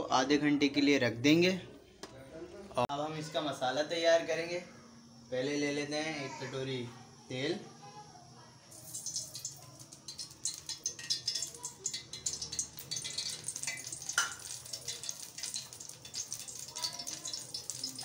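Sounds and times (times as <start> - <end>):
hot oil crackling and spitting: 8.7 - 18.0.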